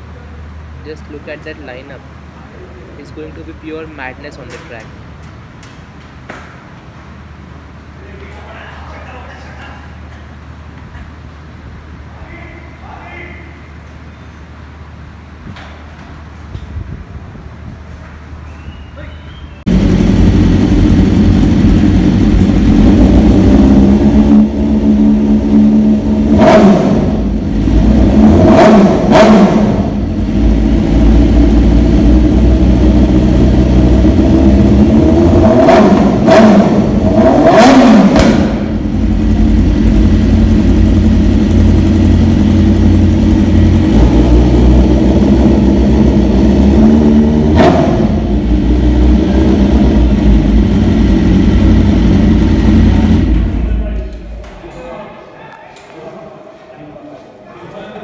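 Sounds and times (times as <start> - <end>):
motorcycle engine revving: 19.7 - 54.4.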